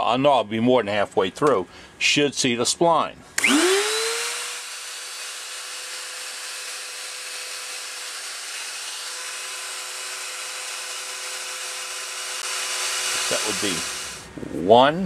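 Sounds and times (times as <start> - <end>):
bit cutting into wood: 3.4 - 14.3
rotary cutter motor whining: 3.4 - 14.3.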